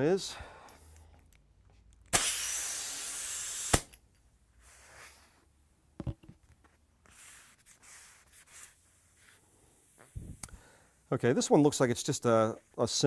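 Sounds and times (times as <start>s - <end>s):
compressed air hiss: 2.1s - 4.0s.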